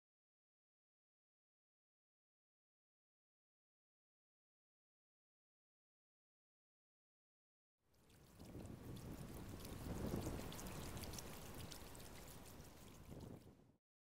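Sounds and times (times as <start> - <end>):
water dripping: 7.9 - 13.7
paddle splashing water: 8.0 - 13.4.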